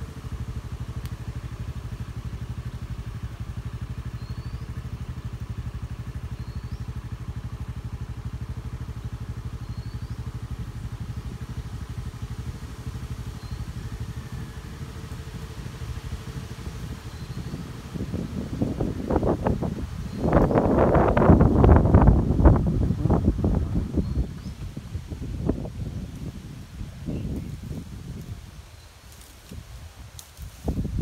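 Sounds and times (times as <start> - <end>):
vehicle engine idling: 0.0 - 31.0
bird rising chirp: 4.0 - 4.9, 9.0 - 10.5, 13.1 - 14.3, 16.8 - 18.0, 19.9 - 20.8, 23.8 - 24.6.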